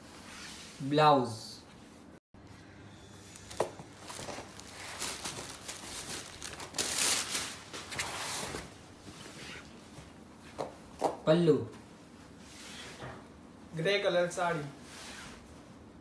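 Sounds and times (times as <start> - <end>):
fabric rustling and crinkling: 3.3 - 10.8.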